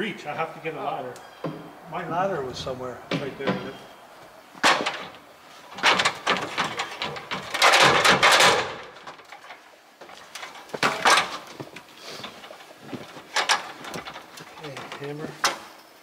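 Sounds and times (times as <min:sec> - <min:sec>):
metal ladder clattering: 0:04.6 - 0:15.7.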